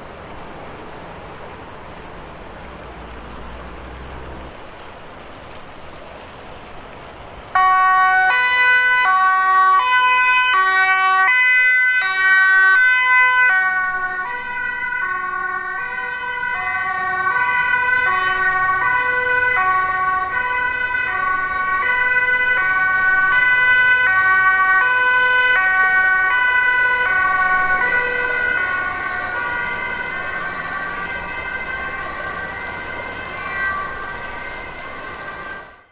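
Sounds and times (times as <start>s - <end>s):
two-tone emergency siren: 7.6s - 35.9s.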